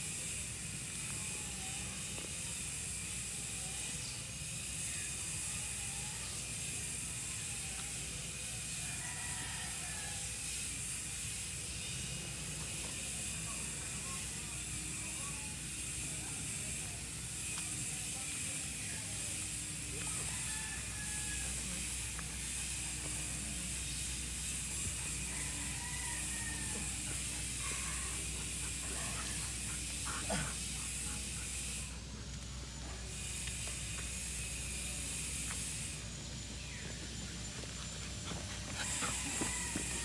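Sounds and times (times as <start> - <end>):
high-pitched hiss: 0.0 - 40.0.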